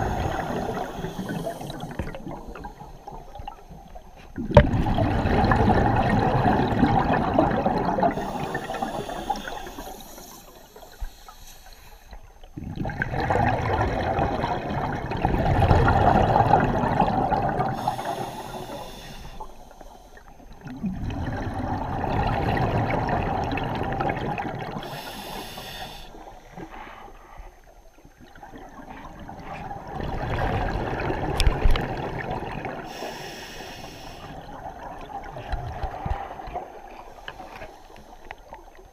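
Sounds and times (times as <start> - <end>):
regulator hissing inhalation: 0.0 - 2.0, 8.1 - 12.2, 17.8 - 20.3, 24.8 - 27.1, 32.9 - 34.4.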